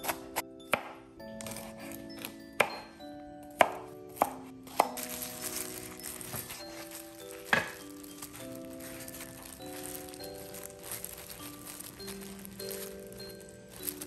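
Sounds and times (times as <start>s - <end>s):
knife chopping on cutting board: 0.0s - 2.8s, 3.6s - 5.0s
background music with held notes: 0.0s - 14.0s.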